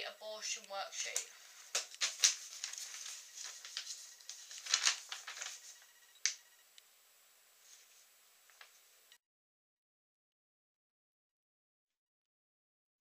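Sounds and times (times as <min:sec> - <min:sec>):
paper rustling and crackling: 0:01.0 - 0:06.4, 0:07.7 - 0:08.8.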